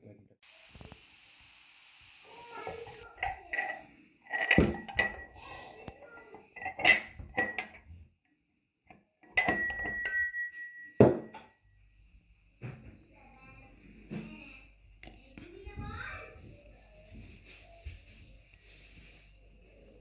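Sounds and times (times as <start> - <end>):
metal pestle clinking in mortar: 9.3 - 11.4.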